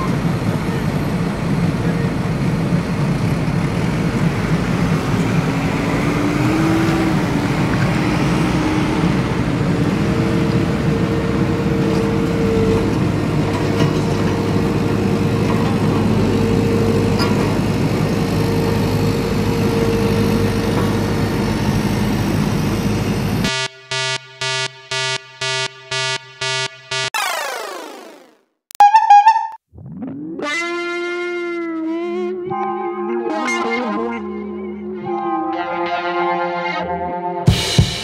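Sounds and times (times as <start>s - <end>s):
heavy vehicle engine rumbling: 0.0s - 25.5s.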